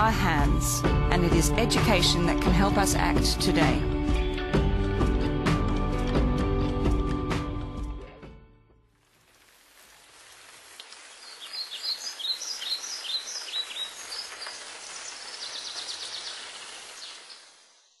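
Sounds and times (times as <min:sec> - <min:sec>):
outdoor hiss: 0:08.9 - 0:18.0
birds chirping: 0:11.0 - 0:18.0.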